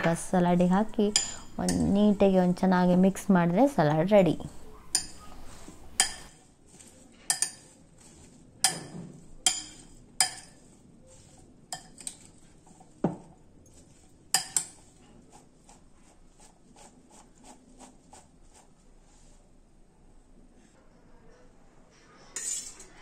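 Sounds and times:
salad leaves rustling: 4.2s - 17.2s.

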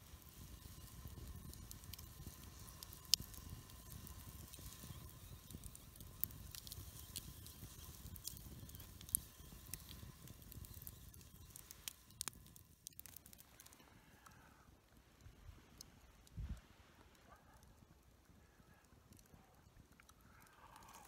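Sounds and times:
sharp fire pops: 0.0s - 13.8s
campfire crackling: 0.0s - 21.0s.

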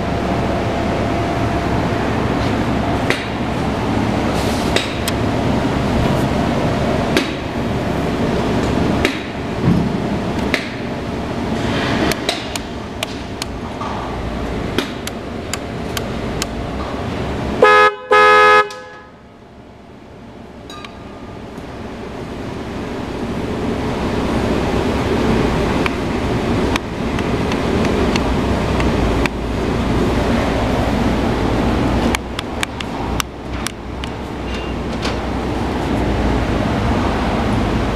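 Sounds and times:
buzzy motorcycle horn: 17.6s - 19.2s.

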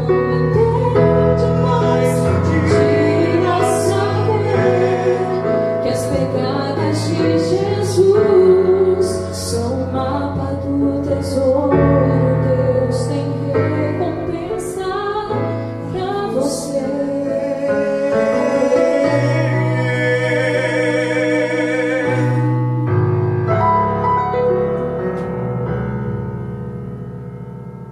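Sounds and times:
woman and man singing: 0.0s - 22.7s
electronic keyboard chords: 17.9s - 27.9s.

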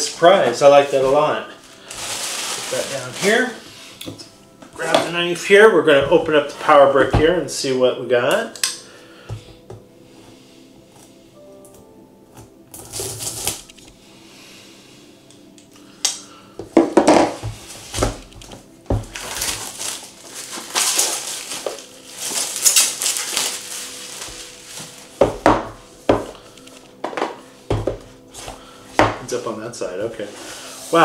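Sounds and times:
knife slicing tape: 12.8s - 13.7s.

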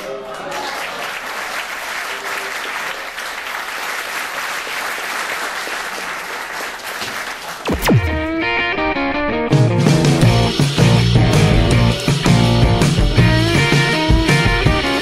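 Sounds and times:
audience applauding: 0.0s - 7.7s
sharp downward pitch sweep: 7.7s - 9.0s.

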